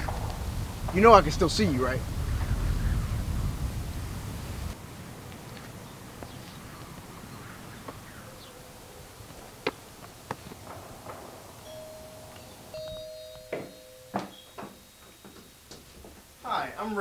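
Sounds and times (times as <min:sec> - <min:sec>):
two-tone doorbell chime: 0:11.6 - 0:15.5.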